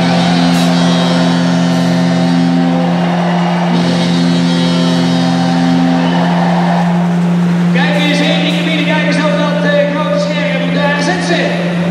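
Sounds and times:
diesel truck engine running: 3.7 - 11.9.

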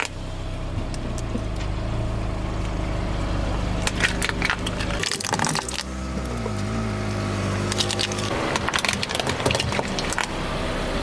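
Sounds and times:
car engine running: 0.0 - 11.0
plastic toys cracking under tyre: 3.8 - 6.4, 7.6 - 10.4.

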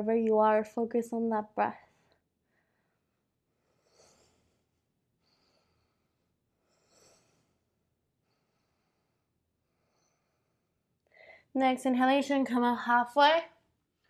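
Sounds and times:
woman breathing softly: 1.8 - 11.5.

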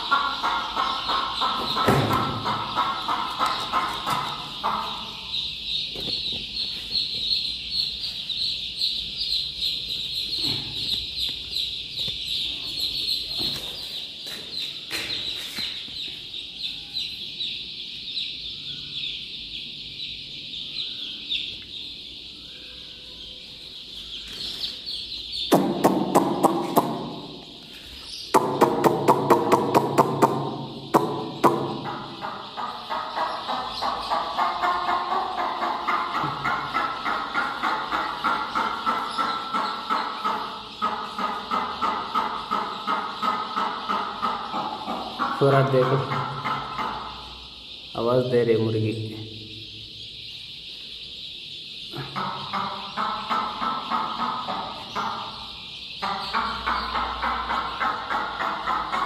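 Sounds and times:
chicks peeping: 0.0 - 59.0.

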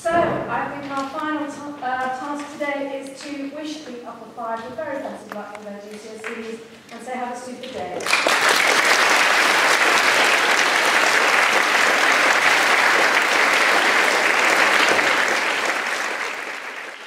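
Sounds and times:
audience clapping: 8.0 - 17.0.

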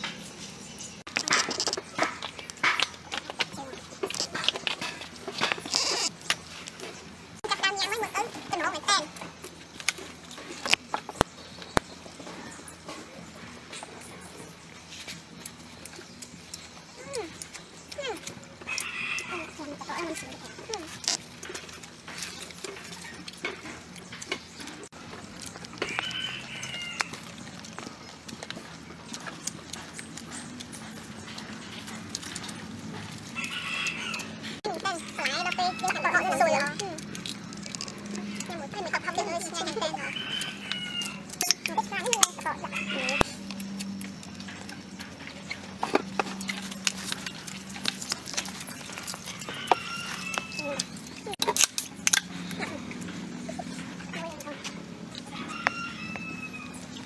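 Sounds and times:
people chewing and lip smacking: 0.0 - 57.0
people crunching vegetables: 0.0 - 57.0
rooster crowing: 18.7 - 19.6, 25.8 - 27.3, 33.4 - 34.5, 35.1 - 36.5, 39.9 - 41.3, 42.6 - 43.4, 49.2 - 50.9, 55.3 - 56.9.

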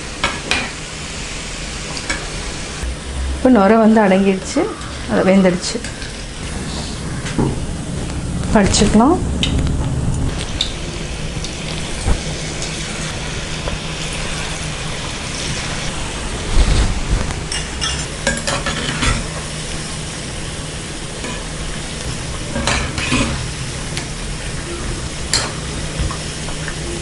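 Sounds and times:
oil sizzling and bubbling: 0.0 - 27.0.

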